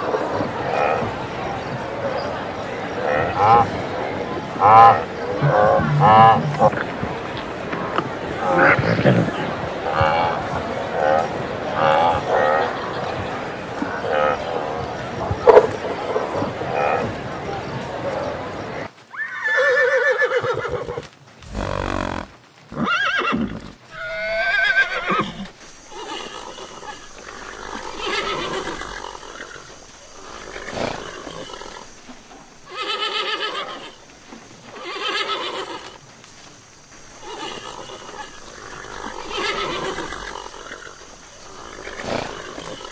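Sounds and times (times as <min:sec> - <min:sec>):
horse whinnying: 0:19.1 - 0:32.0, 0:32.6 - 0:34.1, 0:34.7 - 0:36.0, 0:37.1 - 0:42.9.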